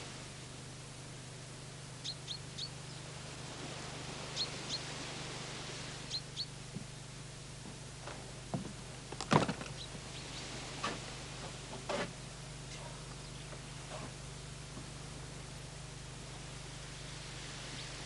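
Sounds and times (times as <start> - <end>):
steady low hum: 0.0 - 18.0
small bird chirping: 2.0 - 3.1, 4.3 - 4.9, 6.1 - 6.6, 9.7 - 10.5.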